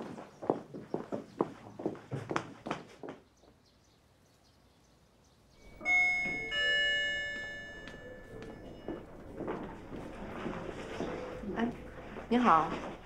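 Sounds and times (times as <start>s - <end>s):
two-note electronic chime: 5.6s - 9.4s.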